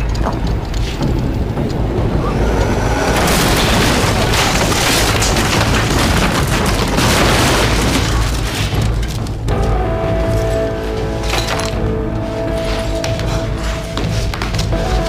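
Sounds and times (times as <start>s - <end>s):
low rumble: 0.0s - 11.2s
smashing crash impacts: 1.1s - 9.2s
faint score music: 8.4s - 15.0s.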